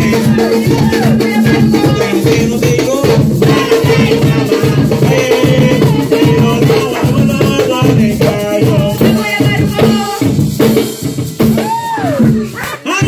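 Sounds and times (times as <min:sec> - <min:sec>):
people singing: 0:00.0 - 0:10.8
hand drums beating: 0:00.0 - 0:13.0.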